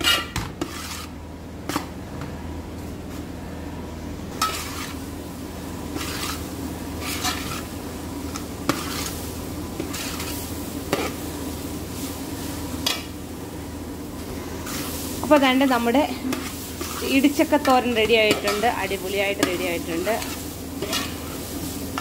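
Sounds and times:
spoon scraping pot: 0.0 - 1.1, 5.9 - 6.4, 8.3 - 9.2, 16.3 - 18.8, 19.4 - 21.4
steady low hum: 0.0 - 22.0.

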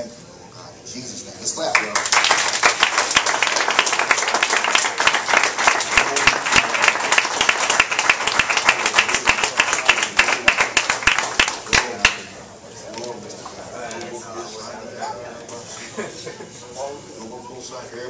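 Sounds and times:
crowd clapping: 1.7 - 12.3.

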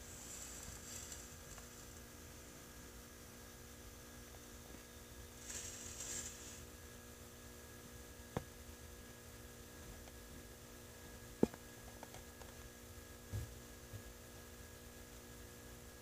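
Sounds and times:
steady electrical hum: 0.0 - 16.0
brief high hiss: 5.4 - 6.7.

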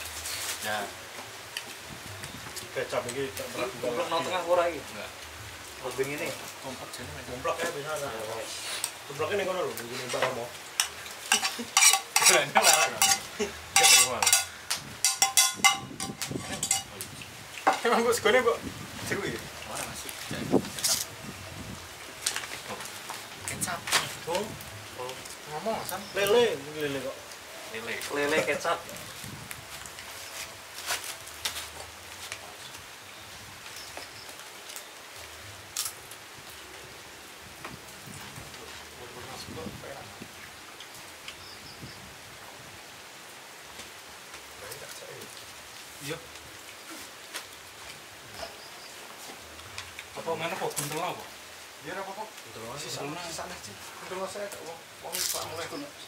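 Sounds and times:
steady hiss: 0.0 - 56.0
spoon scraping metal wok: 10.8 - 16.9.

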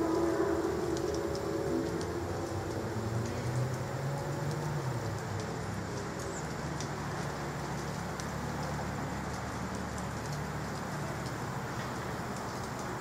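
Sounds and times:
far-off siren tones: 0.0 - 3.1
distant traffic rumble: 0.0 - 13.0.

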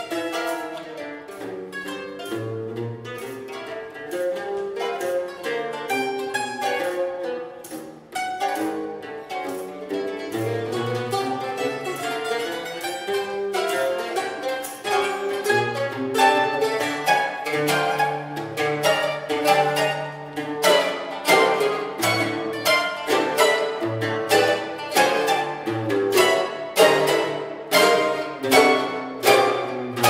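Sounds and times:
mandolin quartet playing: 0.0 - 30.0.

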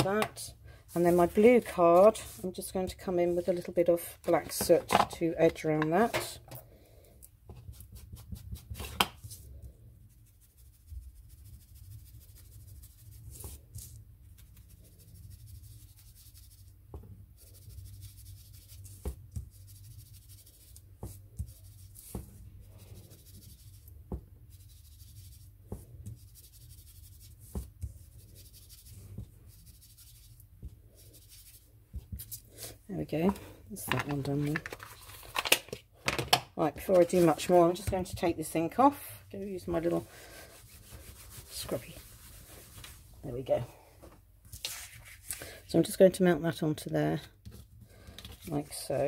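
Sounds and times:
ink dabber rubbing on card: 17.4 - 32.4.

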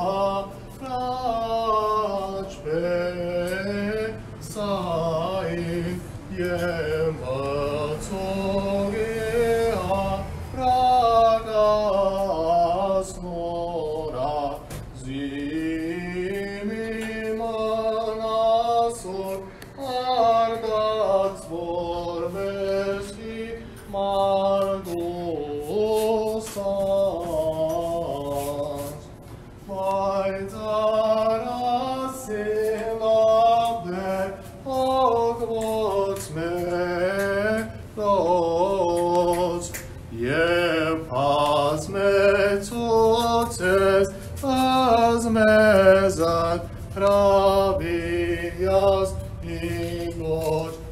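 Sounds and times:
man chanting a hymn: 0.0 - 50.9.

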